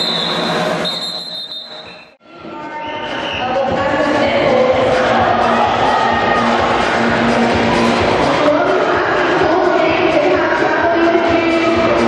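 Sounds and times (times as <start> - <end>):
loud music: 0.0 - 1.6, 2.9 - 12.0
crowd noise: 0.0 - 12.0.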